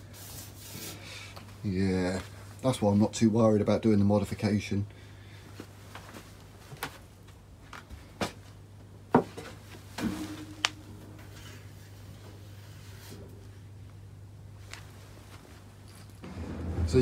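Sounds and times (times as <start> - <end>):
steady low hum: 4.8 - 17.0.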